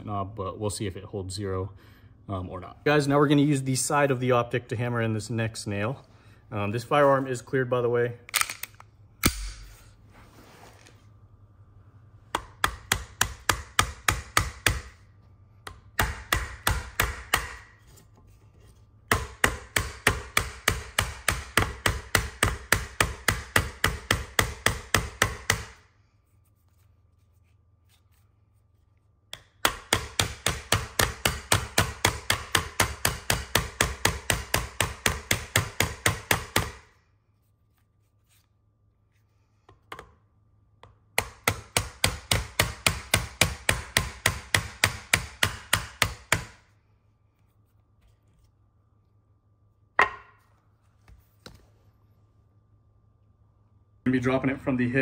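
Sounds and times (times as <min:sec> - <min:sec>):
metal striking a nail: 0:41.2 - 0:46.6.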